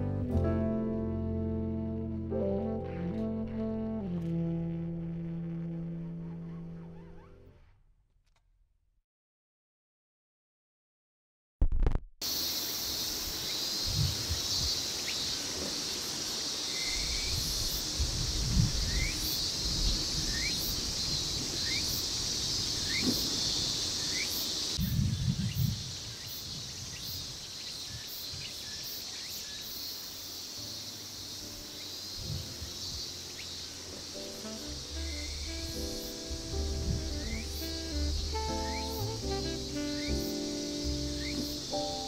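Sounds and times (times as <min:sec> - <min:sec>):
high-pitched insect chorus: 0:12.2 - 0:42.0.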